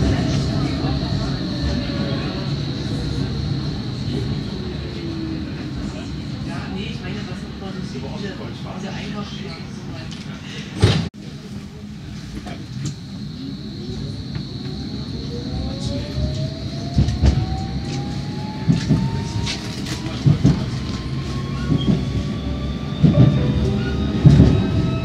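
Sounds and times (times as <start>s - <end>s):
tram motor whining: 12.4s - 25.0s.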